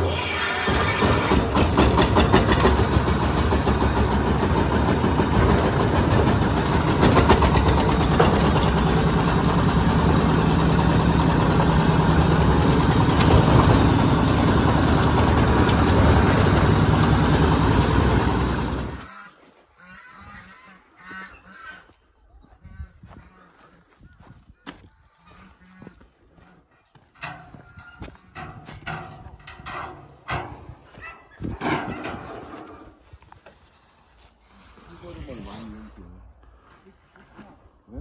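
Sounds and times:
diesel engine chugging: 0.0 - 19.1.

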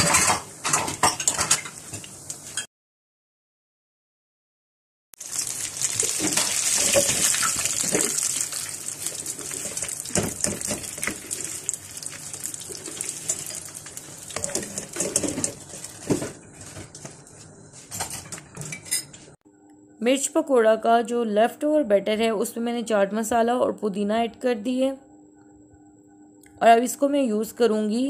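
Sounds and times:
food deep-frying in oil: 5.2 - 17.1.

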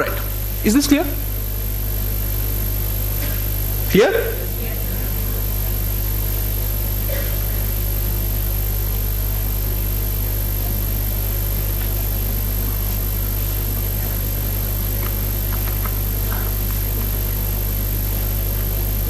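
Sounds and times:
low electrical hum with hiss: 0.0 - 19.0.

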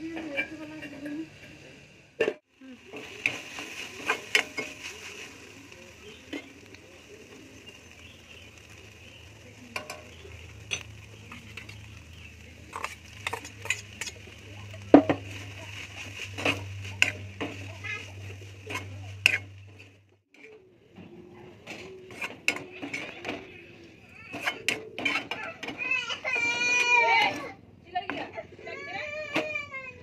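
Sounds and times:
vegetables sizzling in a pan: 0.0 - 20.5, 21.6 - 29.9
metal spatula scraping pan: 0.1 - 1.1, 2.9 - 5.2, 9.8 - 20.6, 21.6 - 23.6, 24.3 - 27.5.

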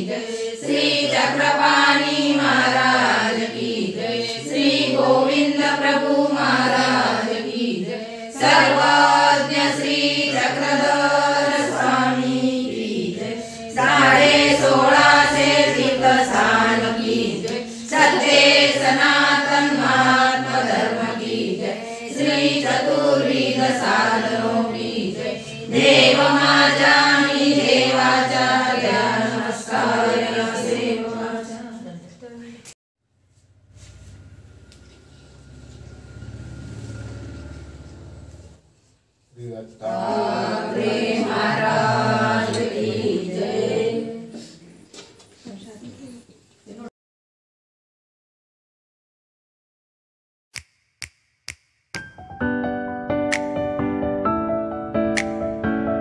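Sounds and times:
group singing a devotional chant: 0.0 - 32.7, 39.4 - 44.9.

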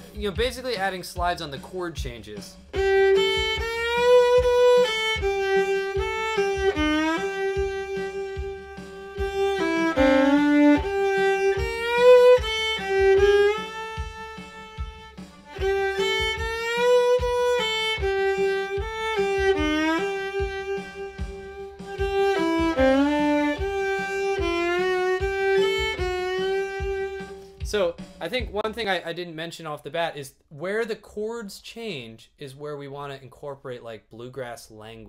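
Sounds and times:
fiddle playing bluegrass melody: 2.3 - 28.7.

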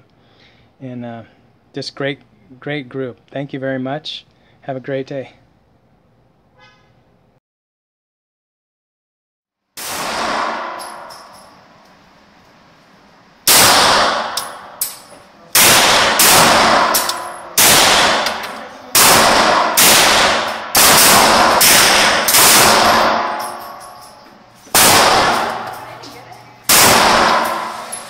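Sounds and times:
pistol shots echoing indoors: 9.8 - 11.8, 13.4 - 28.0.

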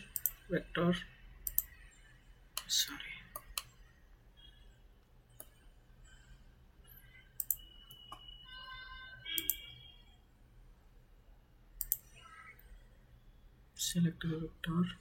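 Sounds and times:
computer mouse clicks: 0.1 - 0.4, 1.4 - 1.8, 2.6 - 3.8, 5.0 - 5.7, 7.3 - 8.3, 9.4 - 9.7, 11.8 - 12.8.

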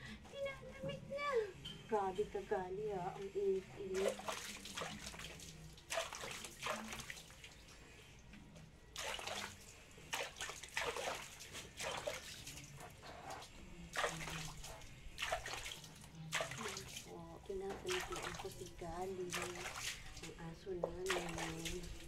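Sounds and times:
water splashing: 3.8 - 8.2, 8.9 - 22.0.

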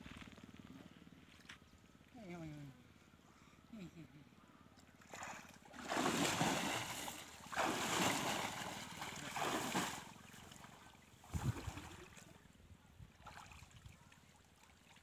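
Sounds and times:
water splashing and sloshing: 4.8 - 15.0.

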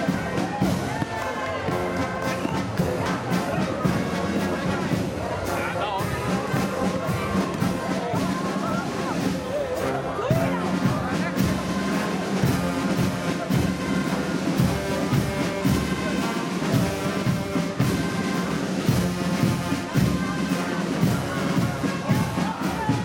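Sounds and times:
marching band brass: 0.0 - 23.0
marching drums: 0.0 - 23.0.

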